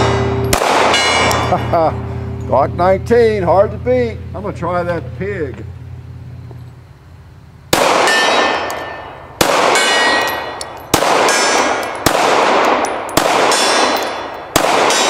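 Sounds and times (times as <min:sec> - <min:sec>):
pistol shots: 0:00.0 - 0:01.7, 0:07.7 - 0:15.0
steel target clanging: 0:00.0 - 0:05.2, 0:07.7 - 0:15.0.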